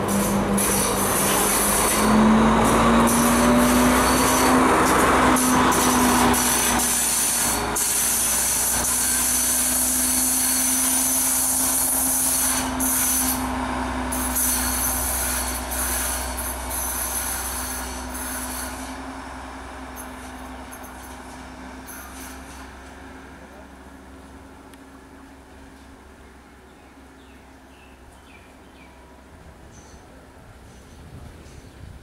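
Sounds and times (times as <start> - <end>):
diesel train passing: 0.0 - 32.0
train on rails: 0.0 - 32.0.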